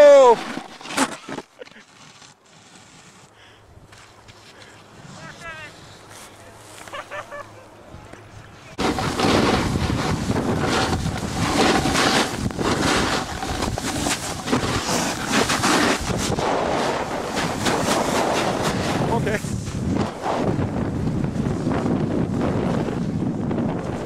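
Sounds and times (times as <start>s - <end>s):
snowboard sliding over snow: 4.6s - 7.4s, 8.8s - 24.0s
wind buffeting microphone: 8.8s - 24.0s.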